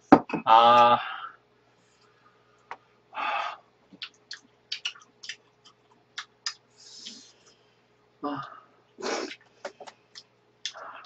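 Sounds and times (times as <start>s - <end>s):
chewing and mouth noises: 4.0s - 7.4s.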